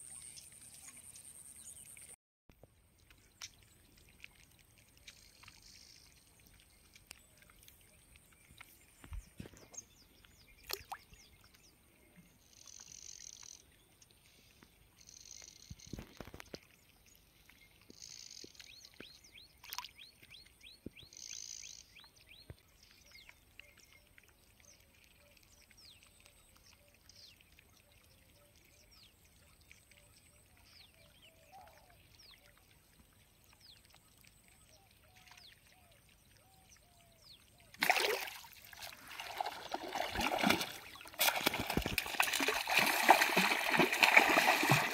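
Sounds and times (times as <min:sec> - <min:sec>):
fish thrashing in water: 0:37.8 - 0:44.9.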